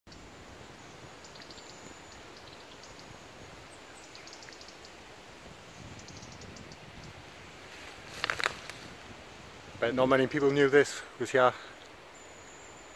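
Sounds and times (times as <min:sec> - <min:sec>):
faint bird chirps: 0:00.1 - 0:05.0, 0:05.7 - 0:07.2, 0:11.6 - 0:12.9.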